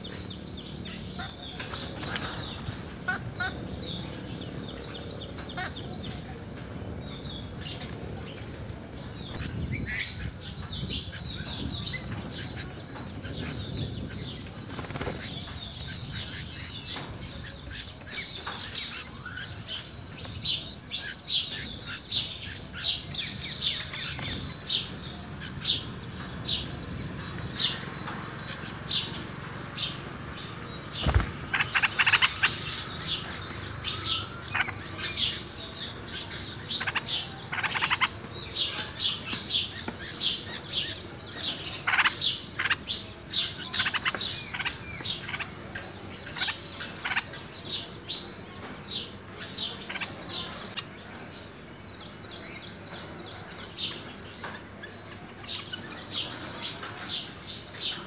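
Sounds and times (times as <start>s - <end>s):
nestlings chirping: 0.0s - 45.4s.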